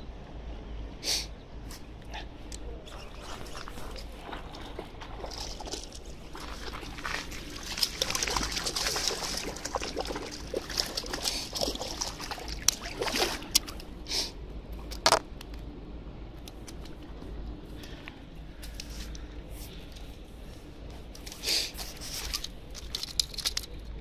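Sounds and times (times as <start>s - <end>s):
water sloshing: 2.8s - 14.0s
fish splashing and thrashing in water: 2.9s - 13.9s.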